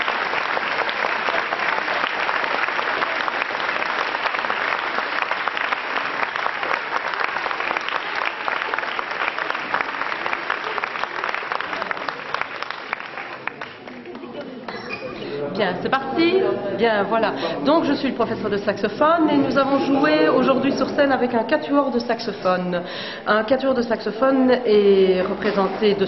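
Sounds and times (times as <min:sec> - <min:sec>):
audience applauding: 0:00.0 - 0:14.7.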